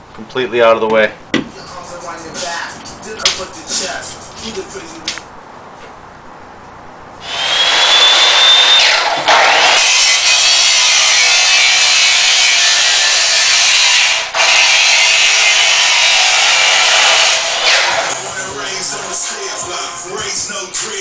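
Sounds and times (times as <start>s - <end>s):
chop saw cutting steel: 7.2s - 18.2s.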